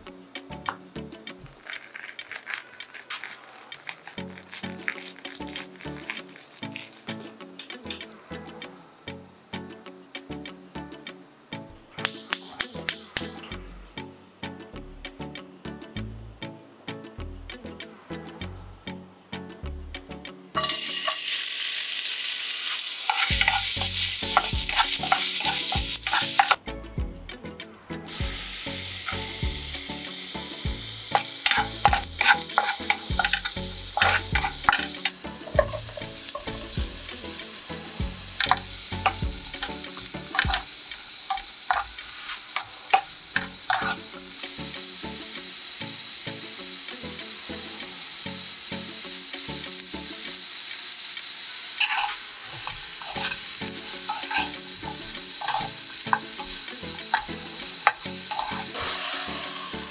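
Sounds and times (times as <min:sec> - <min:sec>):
vegetables sizzling in oil: 0:01.6 - 0:07.2, 0:12.0 - 0:13.4, 0:20.6 - 0:26.6, 0:28.1 - 0:59.9
spatula knocking and scraping pan: 0:23.1 - 0:26.6, 0:31.2 - 0:36.9, 0:38.4 - 0:40.7, 0:41.3 - 0:44.0, 0:51.8 - 0:59.7.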